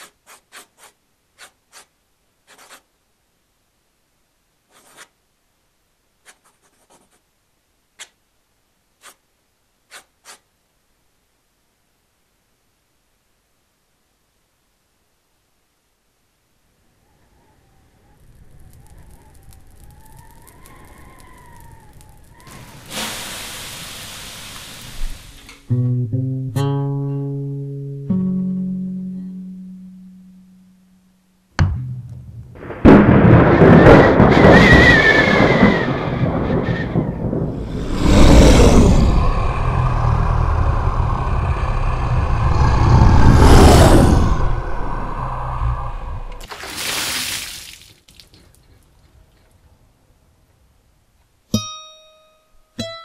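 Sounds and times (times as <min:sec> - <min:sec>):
crackling like small fire: 0:17.8 - 0:25.7, 0:32.6 - 0:46.4
rain hiss: 0:17.9 - 0:25.8, 0:32.6 - 0:48.4
plucked guitar notes: 0:25.7 - 0:32.6, 0:51.6 - 0:53.0
monster growling roar: 0:37.5 - 0:46.4.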